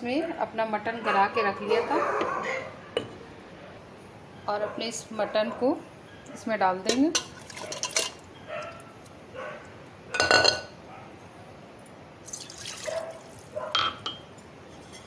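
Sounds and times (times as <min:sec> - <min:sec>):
water pouring and splashing: 0:07.2 - 0:08.2, 0:12.2 - 0:13.6.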